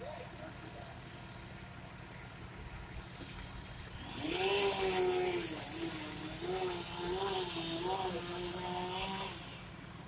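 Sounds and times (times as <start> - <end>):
chainsaw cutting: 3.2 - 10.0.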